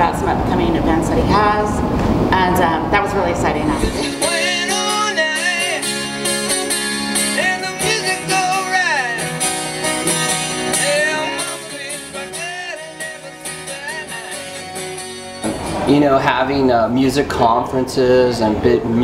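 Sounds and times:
acoustic guitar playing: 0:00.0 - 0:17.7
person singing with vibrato: 0:03.8 - 0:15.7.

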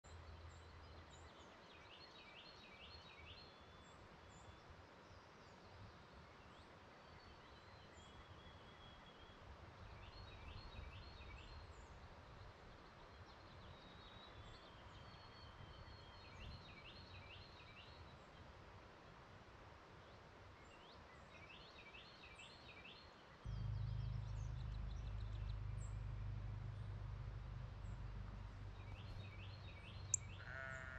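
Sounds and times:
songbird short song: 0:00.0 - 0:18.6, 0:20.0 - 0:30.9
low rumble: 0:23.5 - 0:30.6
thin high bird calls: 0:23.5 - 0:30.9.

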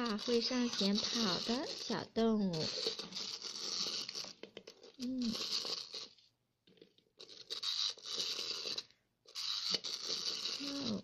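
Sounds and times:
wind-up toy motor whirring: 0:00.0 - 0:06.3, 0:07.2 - 0:11.0.

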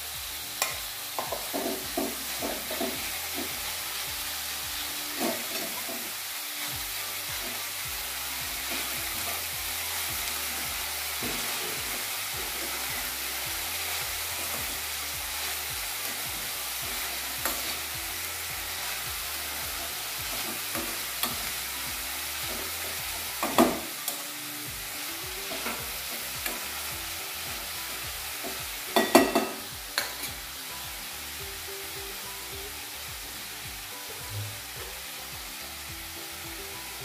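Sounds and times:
vegetables sizzling in a pan: 0:00.0 - 0:37.0
spoon knocking on pan: 0:00.6 - 0:03.6, 0:23.4 - 0:24.0, 0:28.4 - 0:30.3
spoon scraping a pan: 0:00.6 - 0:07.8, 0:08.6 - 0:24.2, 0:25.4 - 0:30.4.

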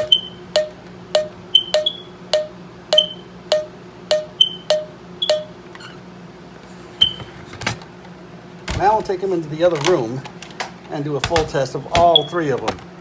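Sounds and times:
high sharp smoke alarm chirps: 0:00.0 - 0:05.6
low-pitched smoke alarm chirps: 0:00.0 - 0:05.6.

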